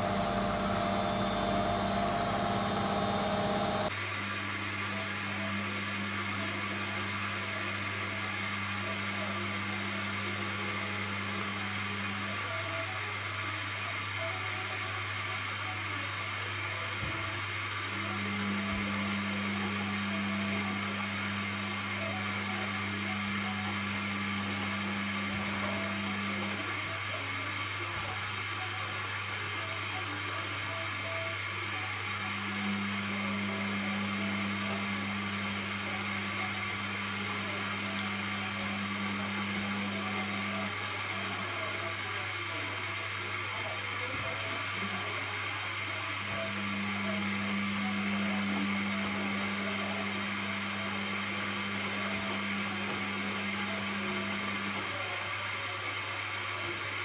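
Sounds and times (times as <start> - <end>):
steady low hum: 0.0 - 3.9
washing machine drum motor humming: 0.0 - 3.9.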